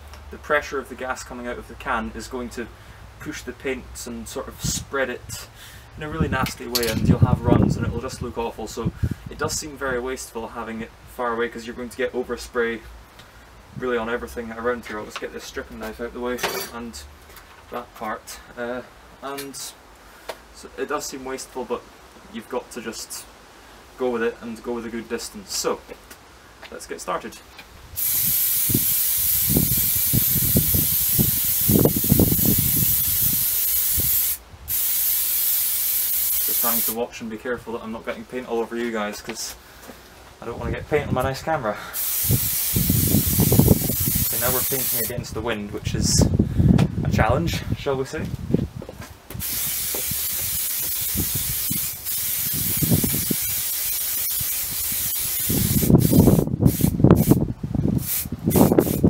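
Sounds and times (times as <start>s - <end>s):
wind buffeting microphone: 6.1s - 9.6s, 27.8s - 33.4s, 42.2s - 44.4s, 45.2s - 53.6s, 54.3s - 59.0s
aerosol spray hissing: 28.0s - 37.0s, 42.0s - 45.1s, 49.4s - 57.4s, 58.0s - 59.0s.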